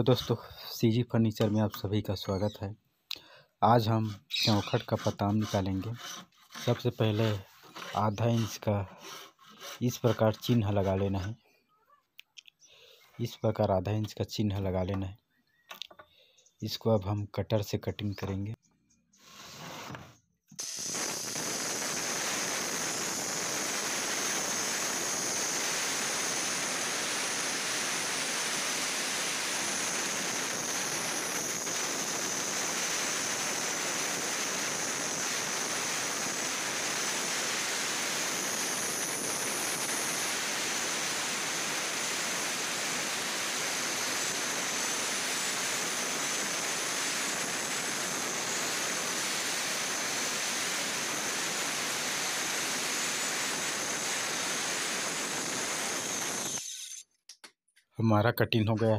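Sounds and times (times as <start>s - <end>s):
circular saw cutting wood: 3.8s - 11.4s, 19.4s - 57.1s.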